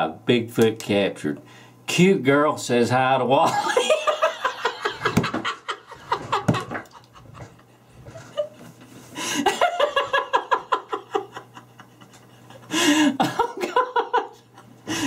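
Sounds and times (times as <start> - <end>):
man laughing hard: 3.4 - 8.6, 9.2 - 15.0.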